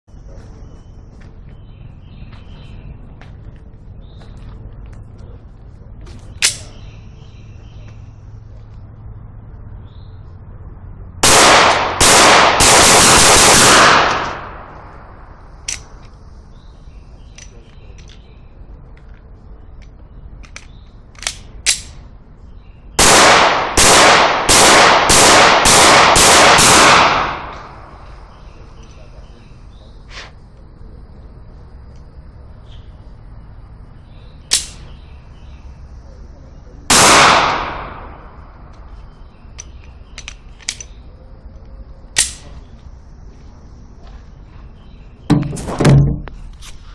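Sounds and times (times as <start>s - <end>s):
handgun shots with echo: 6.4s - 6.8s, 11.2s - 14.8s, 23.0s - 27.9s, 34.5s - 34.9s, 36.9s - 38.4s, 42.2s - 42.6s.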